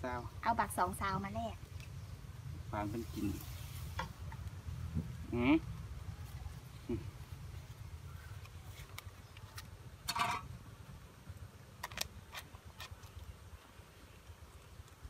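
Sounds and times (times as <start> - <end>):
banana leaf crackling: 2.9 - 10.4, 11.7 - 13.7.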